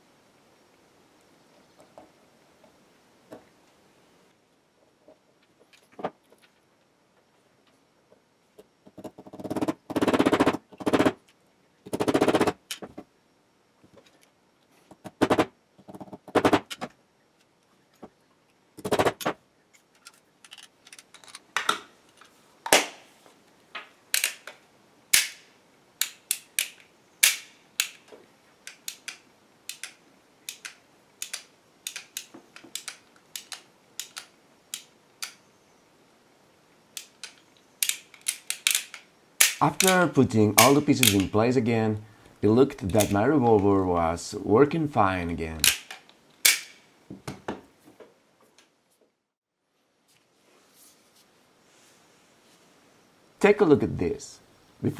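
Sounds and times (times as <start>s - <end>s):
sharp mechanical clicks: 28.6s - 35.4s, 37.0s - 41.3s.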